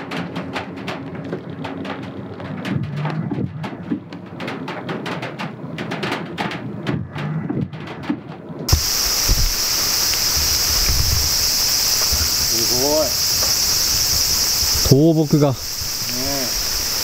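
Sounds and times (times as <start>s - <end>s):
high insect drone: 8.7s - 17.0s
steady hiss: 8.7s - 17.0s
water dripping: 8.7s - 17.0s.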